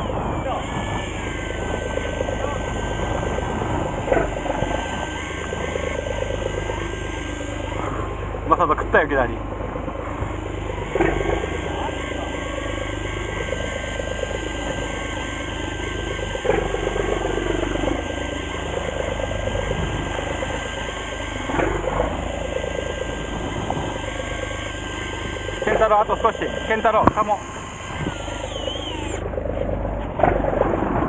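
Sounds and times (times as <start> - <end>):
boat engine running at low revs: 0.0 - 31.0
short pitch-sweeping sounds: 10.2 - 29.8.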